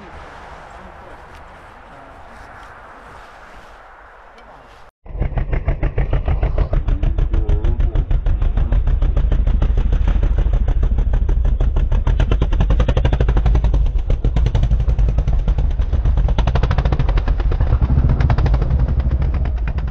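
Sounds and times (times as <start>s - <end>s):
quad engine chugging: 5.1s - 19.9s.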